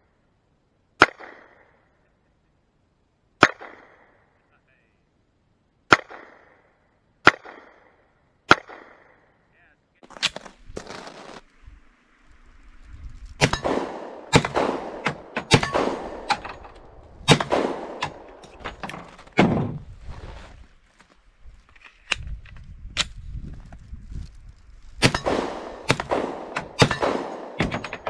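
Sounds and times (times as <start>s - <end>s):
pistol shots with echo: 13.4s - 16.6s, 17.2s - 18.4s, 25.0s - 28.0s.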